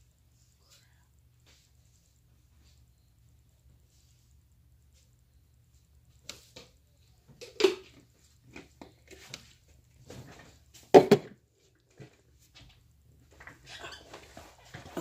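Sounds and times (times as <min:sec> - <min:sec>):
loud thumps: 0:10.9 - 0:11.4.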